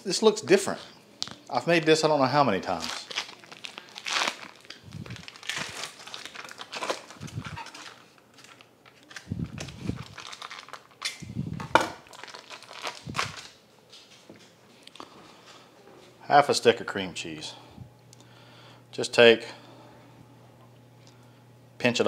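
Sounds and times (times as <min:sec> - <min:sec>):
foil wrapper crinkling and tearing: 0:02.6 - 0:13.6.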